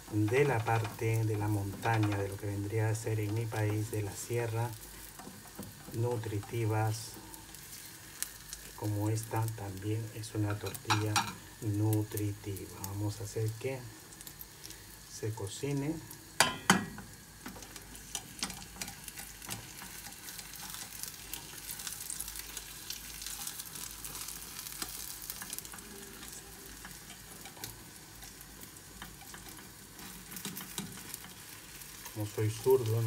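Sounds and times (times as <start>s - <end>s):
omelette sizzling in oil: 0.0s - 33.0s.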